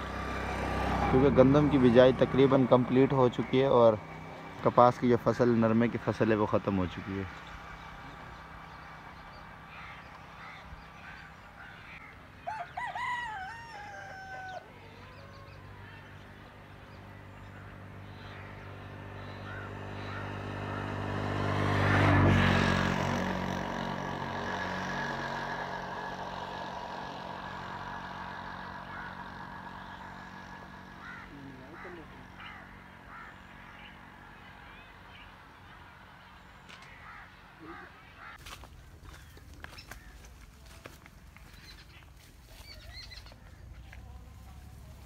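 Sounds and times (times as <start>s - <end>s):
vehicle engine droning past: 0.0s - 45.0s
rooster crowing: 12.4s - 15.8s.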